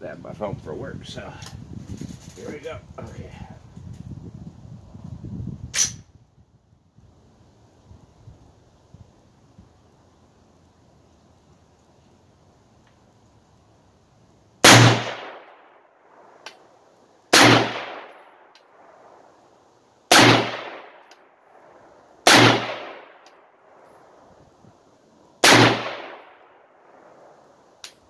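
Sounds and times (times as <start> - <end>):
rifle shots echoing: 14.6 - 16.3, 17.3 - 19.2, 20.1 - 23.8, 25.4 - 27.4.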